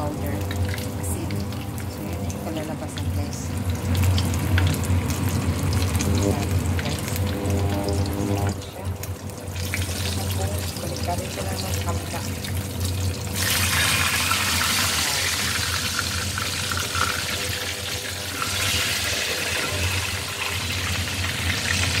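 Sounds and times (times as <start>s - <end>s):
fish sizzling in hot oil: 0.0s - 22.0s
low steady hum: 0.0s - 22.0s.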